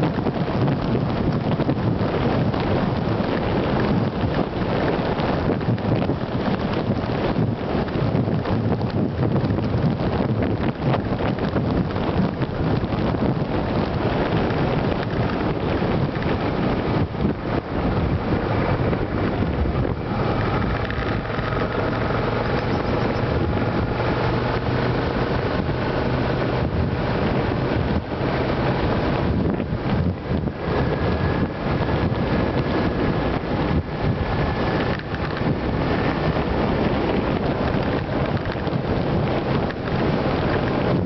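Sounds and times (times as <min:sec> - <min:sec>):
motorcycle engine running: 0:00.0 - 0:41.0
wind rushing over microphone: 0:00.0 - 0:41.0.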